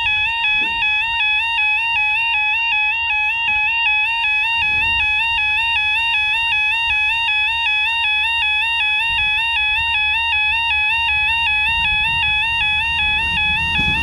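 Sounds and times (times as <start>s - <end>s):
two-tone electronic warning alarm: 0.0s - 14.0s
wind rumbling on microphone: 4.4s - 6.5s, 9.0s - 14.0s.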